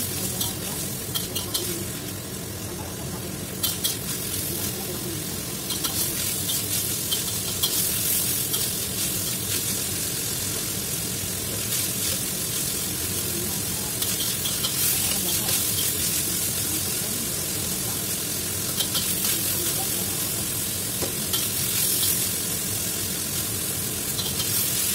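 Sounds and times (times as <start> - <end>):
chicken sizzling in a wok: 0.0 - 24.9
metal spatula scraping a wok: 0.3 - 2.0, 3.6 - 4.7, 5.6 - 9.8, 24.1 - 24.8.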